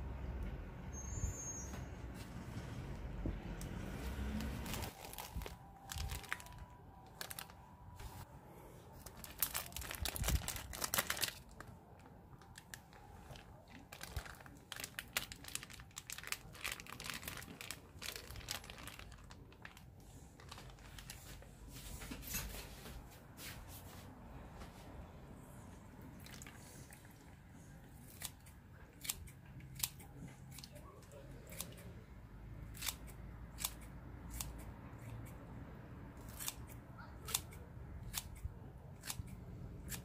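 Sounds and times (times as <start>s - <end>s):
plastic bag crinkling: 4.3s - 8.2s, 9.0s - 21.5s
scissors snipping: 28.0s - 31.9s, 32.7s - 35.4s, 36.2s - 40.0s.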